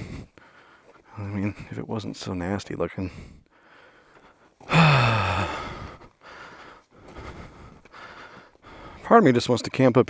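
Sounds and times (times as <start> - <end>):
man sighing: 4.6 - 6.7.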